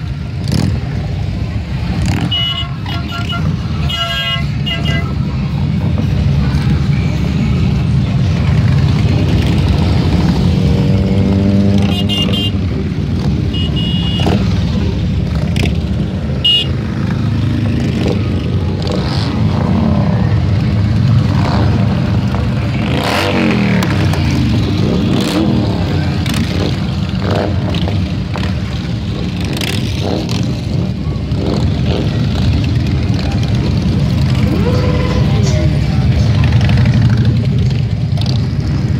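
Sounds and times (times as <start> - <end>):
motorcycles rumbling past: 7.7 - 13.5, 14.2 - 38.9.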